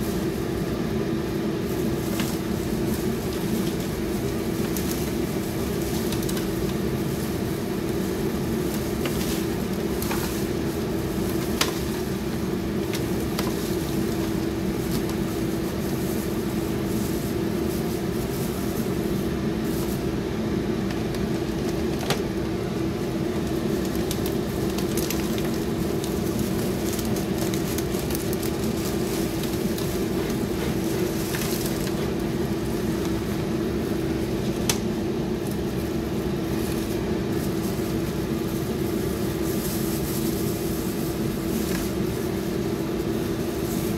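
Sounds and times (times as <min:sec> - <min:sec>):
light crackles of rice paper: 0:00.0 - 0:43.9
steady mechanical hum: 0:00.0 - 0:43.9.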